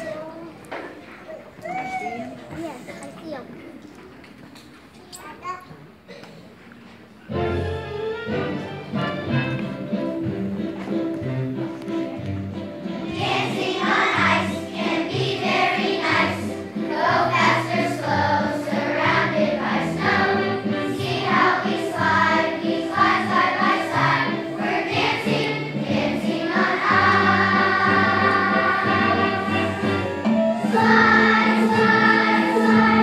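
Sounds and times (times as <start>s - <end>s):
children's choir singing: 12.9s - 33.0s.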